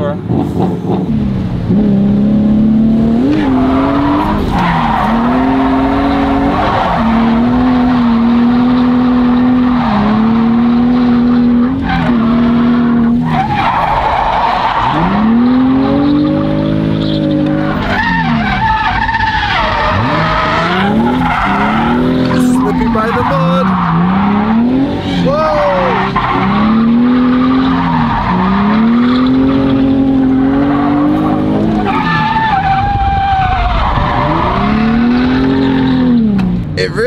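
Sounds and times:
car engine at high revs: 0.0 - 36.8
tyres squealing: 17.0 - 29.7.

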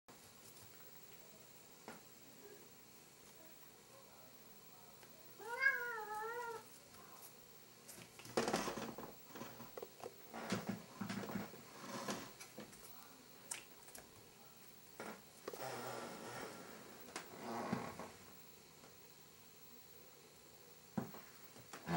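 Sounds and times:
cat meowing: 5.4 - 6.7.

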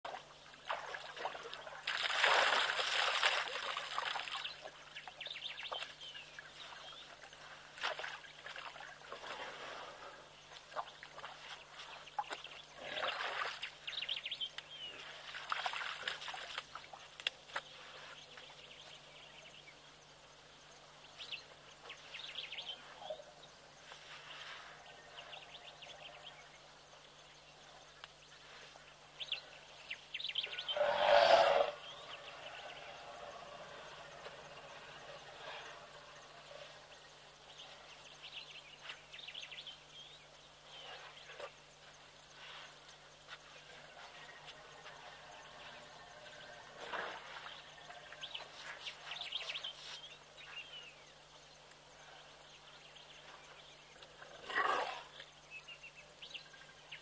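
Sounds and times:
water and mud splashing: 0.0 - 5.1, 6.6 - 14.1, 15.0 - 17.6.

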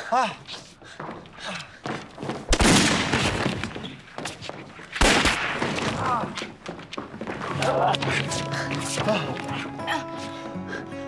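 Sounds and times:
loud gunshots echoing in a hall: 2.5 - 3.7, 5.0 - 6.0.

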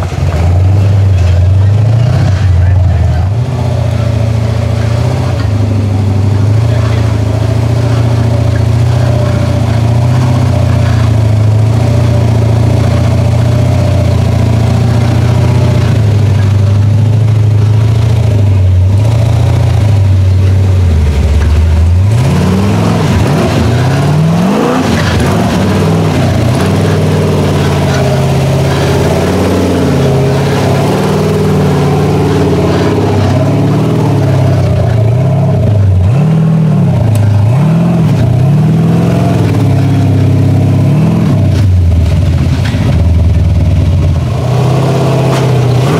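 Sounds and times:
truck engine revving: 0.0 - 45.9.

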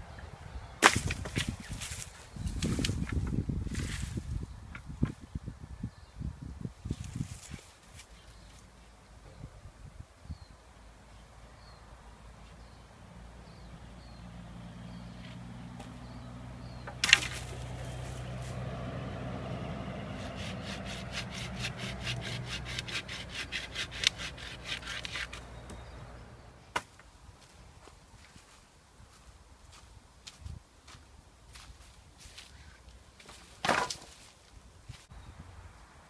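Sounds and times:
wood cracking: 0.8 - 2.0, 16.8 - 17.8, 33.6 - 34.2
hand saw cutting wood: 16.9 - 18.6, 20.0 - 26.0.

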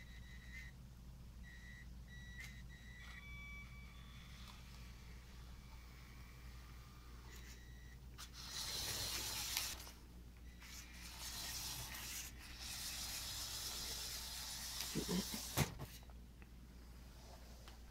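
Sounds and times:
toy car motors whirring: 8.2 - 9.9, 10.6 - 15.6.

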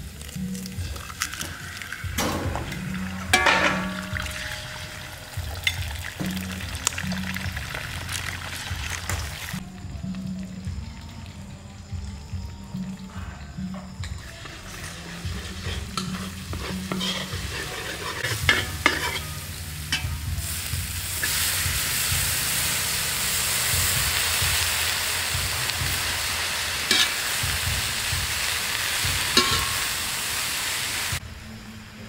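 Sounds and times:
food sizzling in a pan: 0.0 - 10.4, 14.2 - 31.2
utensil knocking against pan: 2.2 - 4.7, 29.3 - 29.8.

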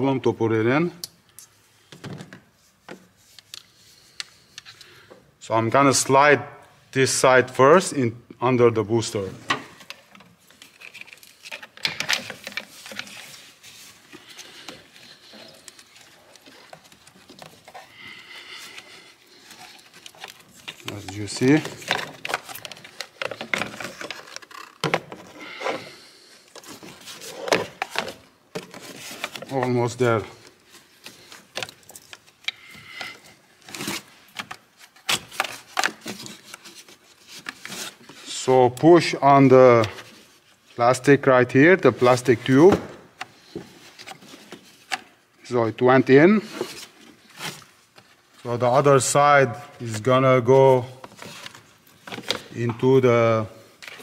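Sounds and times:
rustling of hoses: 9.1 - 41.2
plastic pipe clicks and scraping: 9.5 - 25.8, 51.0 - 52.8.

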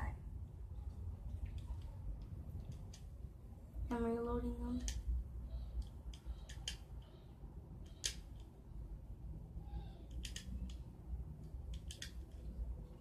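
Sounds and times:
bbs clicking into plastic magazine: 4.8 - 5.1, 5.8 - 7.2, 7.8 - 8.6, 10.1 - 12.6.

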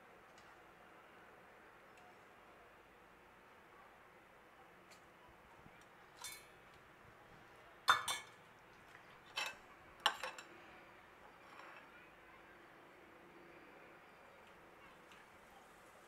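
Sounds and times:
metal skimmer clinking on pan: 6.2 - 6.5, 7.9 - 8.4, 9.3 - 10.5.

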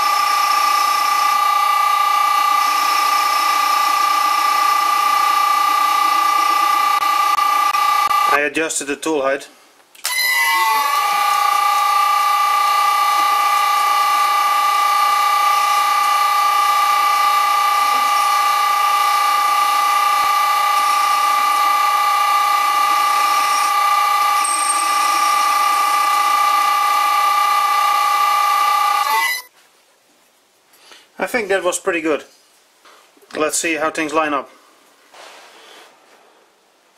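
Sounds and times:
electric motor whining: 0.0 - 8.3, 10.1 - 29.5.

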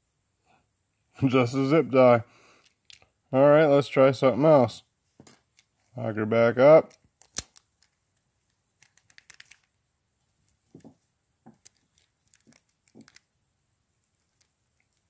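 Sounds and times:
padlock shackle snapping shut: 6.9 - 7.9
faint metallic clicks and taps: 10.4 - 13.3.

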